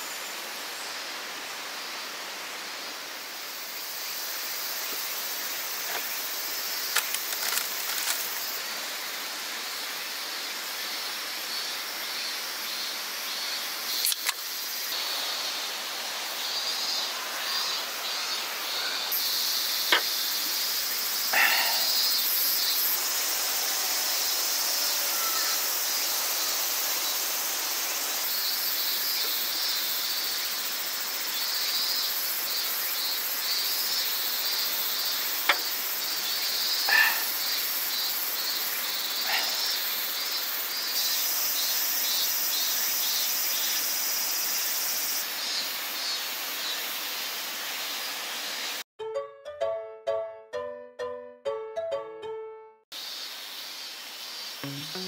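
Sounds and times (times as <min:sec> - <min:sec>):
insects chirring: 0:00.0 - 0:48.8, 0:52.9 - 0:55.0
steady hiss: 0:00.0 - 0:48.8, 0:52.9 - 0:55.0
sharp clicks: 0:06.9 - 0:08.3, 0:14.0 - 0:14.4.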